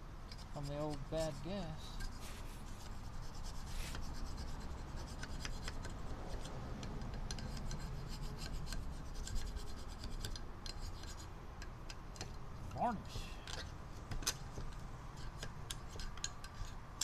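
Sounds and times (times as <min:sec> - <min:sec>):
screwdriver scraping inside metal bowl: 0:15.2 - 0:17.0.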